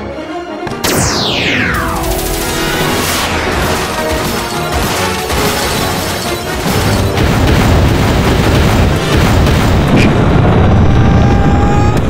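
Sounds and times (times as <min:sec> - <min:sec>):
orchestral score: 0:00.0 - 0:10.6
explosions with deep rumble: 0:06.6 - 0:12.0.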